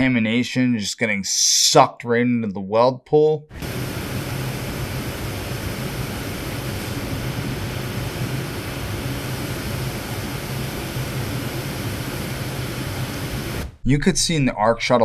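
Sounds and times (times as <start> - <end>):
welding arc hiss: 3.5 - 13.8.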